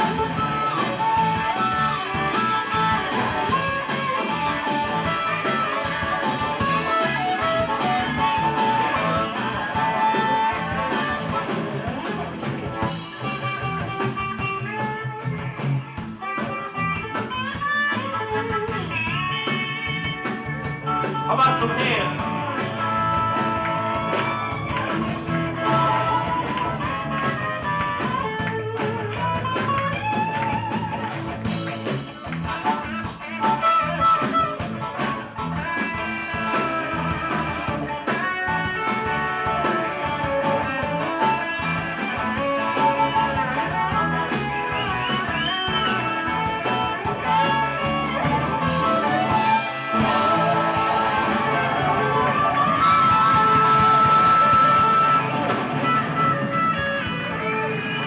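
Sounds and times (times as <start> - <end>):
harmonica: 0.0 - 14.3, 32.5 - 58.0
blues rock band playing: 0.0 - 58.0.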